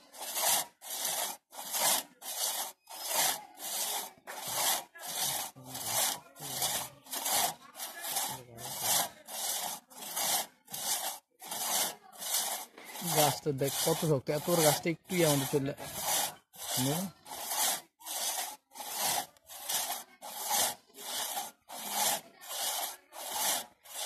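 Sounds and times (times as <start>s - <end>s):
hand saw cutting tree trunk: 0.0s - 24.0s.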